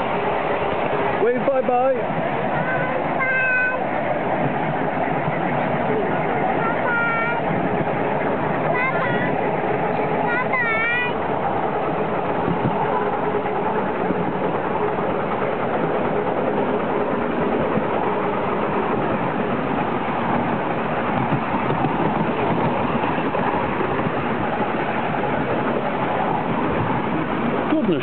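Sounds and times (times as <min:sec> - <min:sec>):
wheels rumbling on rails: 0:00.0 - 0:28.0.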